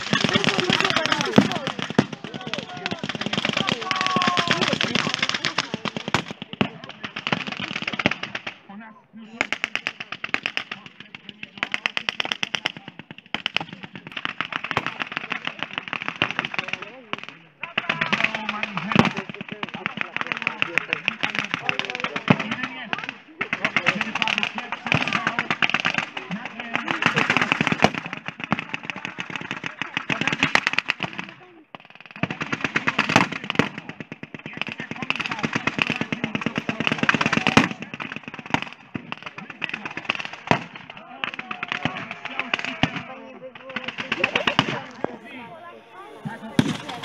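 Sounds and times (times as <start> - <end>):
people shouting: 0.0 - 6.2, 17.6 - 19.2, 34.6 - 47.0
machine-gun fire: 0.0 - 8.6, 9.4 - 47.0
blank gunfire bursts: 0.0 - 8.7, 9.3 - 47.0.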